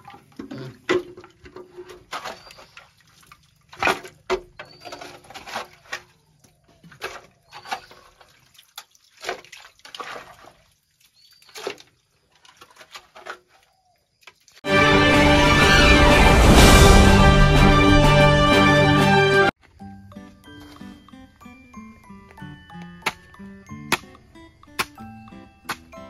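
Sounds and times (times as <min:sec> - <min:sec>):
hands splashing muddy water: 0:06.8 - 0:14.6.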